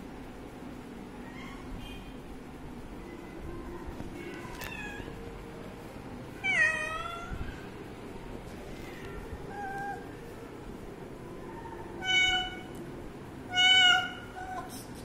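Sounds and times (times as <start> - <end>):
young cats meowing: 11.4 - 12.8, 13.5 - 14.9.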